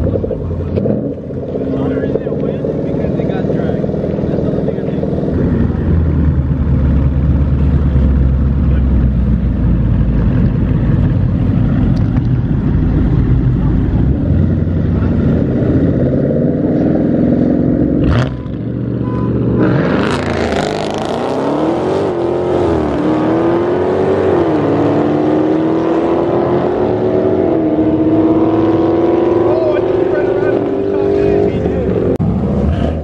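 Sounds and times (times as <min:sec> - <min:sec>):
car engines rumbling: 0:00.0 - 0:33.0
engines revving through upshifts: 0:11.8 - 0:33.0.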